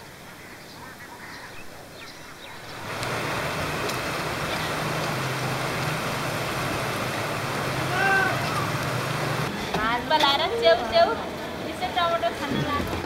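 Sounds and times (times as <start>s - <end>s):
low steady hum: 2.7s - 9.5s
river water rushing over weir: 2.7s - 9.7s.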